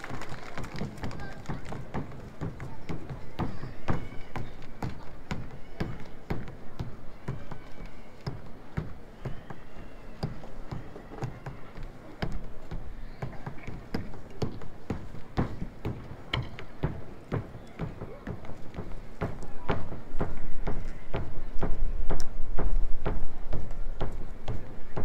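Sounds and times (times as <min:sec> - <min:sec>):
footsteps on hard pavement: 0:10.2 - 0:25.0.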